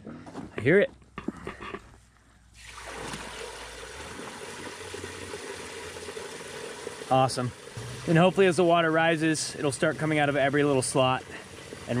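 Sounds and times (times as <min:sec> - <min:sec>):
water gushing into pool: 0:02.6 - 0:12.0.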